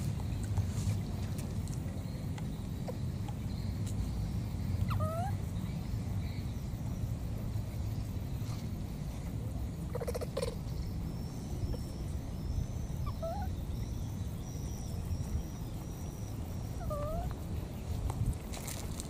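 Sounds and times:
baby monkey crying: 0:04.9 - 0:05.4, 0:09.9 - 0:10.6.

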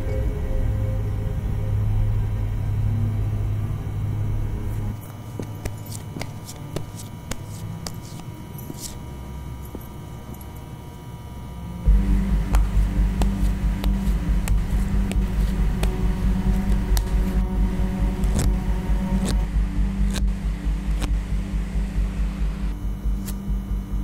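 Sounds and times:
loud pulsing low drone: 0:00.0 - 0:05.1, 0:07.2 - 0:24.0
faint low hum: 0:00.0 - 0:24.0
scattered clicks: 0:11.9 - 0:23.5.

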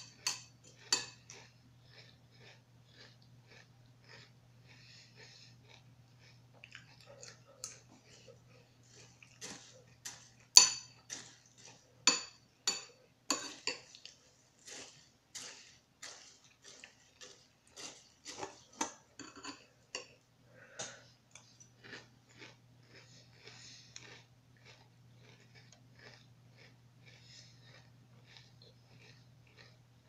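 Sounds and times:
chewing crunchy cereal: 0:00.0 - 0:30.0
spoon clinking on bowl: 0:10.6 - 0:11.3.

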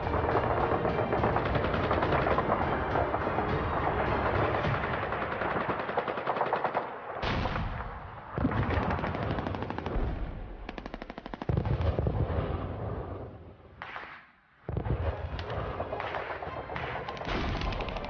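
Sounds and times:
machine-gun fire bursts: 0:00.1 - 0:03.2, 0:04.0 - 0:06.9, 0:08.4 - 0:12.2, 0:14.9 - 0:18.0.

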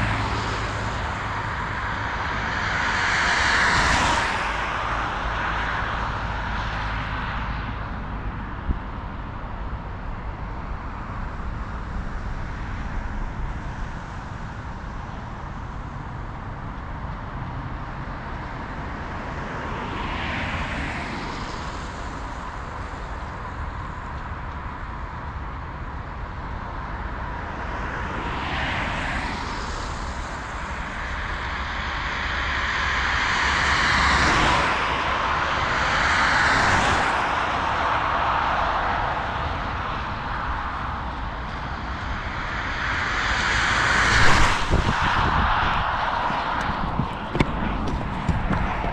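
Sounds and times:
car driving on wet road: 0:00.0 - 0:08.7, 0:28.3 - 0:48.9
steady rushing noise: 0:00.0 - 0:48.9
low knocks: 0:46.3 - 0:48.9.

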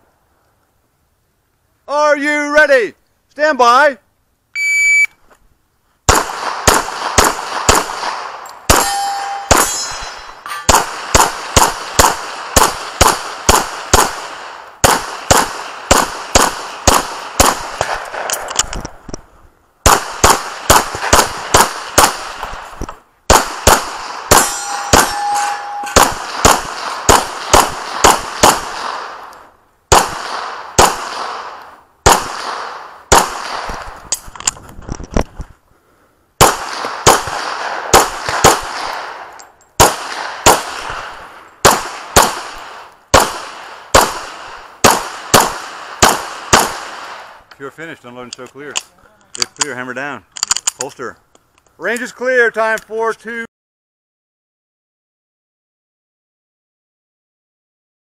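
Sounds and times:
pistol shots: 0:06.1 - 0:18.7, 0:19.8 - 0:34.1, 0:36.4 - 0:47.4
steel target ringing: 0:08.7 - 0:10.8, 0:24.3 - 0:26.1.

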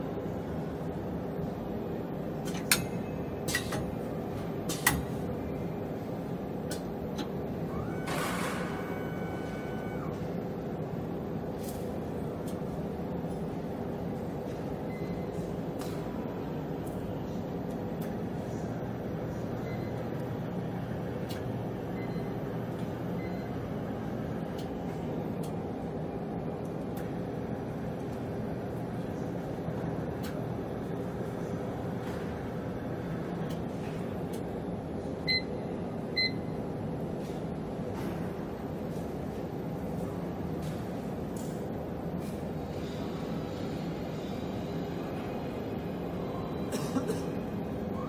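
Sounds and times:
mechanical hum: 0:00.0 - 0:48.0
mechanism clicks and clacks: 0:02.4 - 0:04.0, 0:21.2 - 0:21.6, 0:33.4 - 0:34.6.

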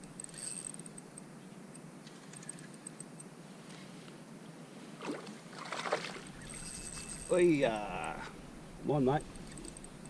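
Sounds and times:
fishing reel ticking: 0:00.0 - 0:01.2, 0:06.2 - 0:08.2, 0:09.3 - 0:10.0.

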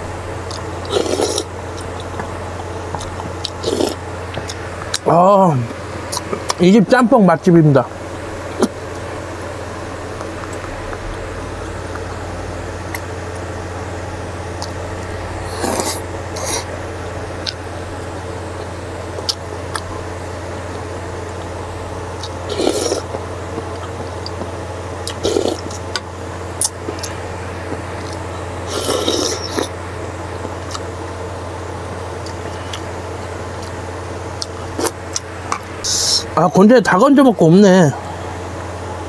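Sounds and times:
low hum: 0:00.0 - 0:39.0
person slurping broth: 0:00.8 - 0:01.5, 0:03.6 - 0:04.0, 0:15.4 - 0:16.7, 0:22.5 - 0:23.1, 0:28.7 - 0:29.7.

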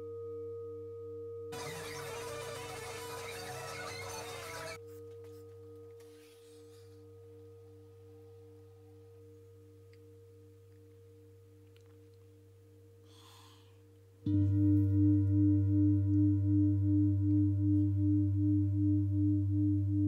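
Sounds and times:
singing bowl ringing: 0:00.0 - 0:04.8, 0:14.3 - 0:20.0.

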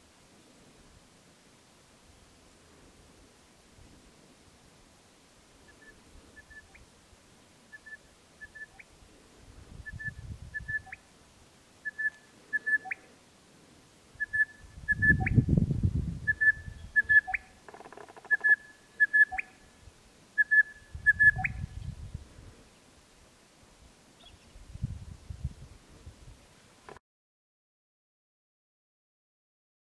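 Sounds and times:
bellbird calling: 0:11.8 - 0:13.1, 0:16.3 - 0:19.7, 0:20.4 - 0:21.6.

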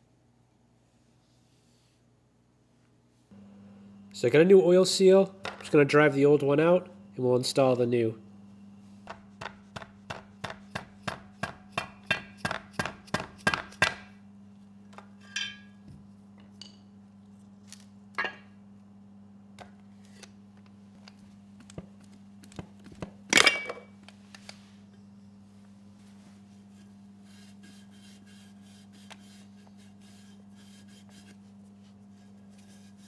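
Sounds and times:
hammer tapping a punch: 0:09.0 - 0:14.1.

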